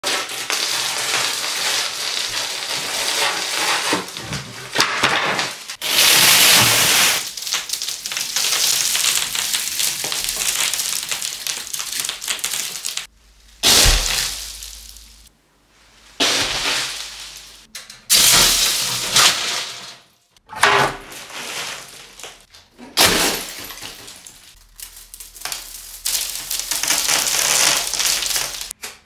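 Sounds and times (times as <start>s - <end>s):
dry spaghetti crunching and snapping: 5.8s - 15.3s, 24.0s - 28.8s.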